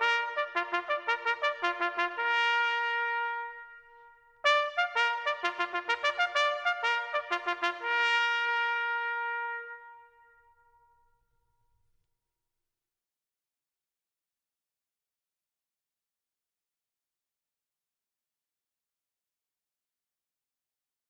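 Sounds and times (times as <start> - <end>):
bugle call on brass instrument: 0.0 - 10.5.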